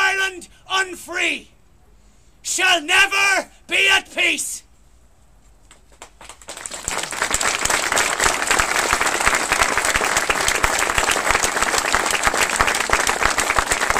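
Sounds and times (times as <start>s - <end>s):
crowd applauding: 6.0s - 13.9s.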